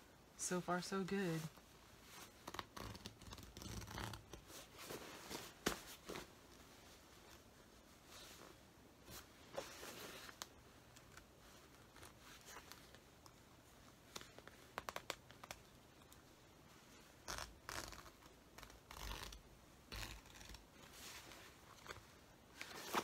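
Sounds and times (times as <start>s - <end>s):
scratchy thread rips: 2.4s - 4.4s, 17.2s - 20.6s.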